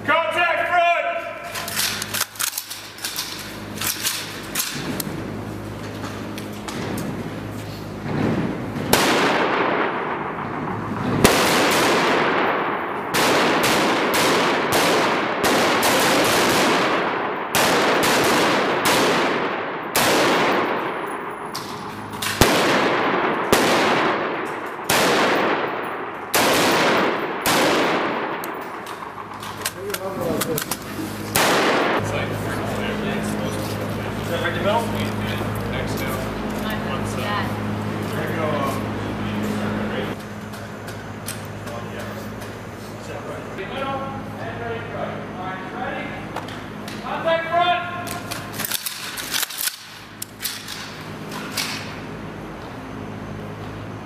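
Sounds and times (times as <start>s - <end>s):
rifle shots: 8.8s - 32.1s.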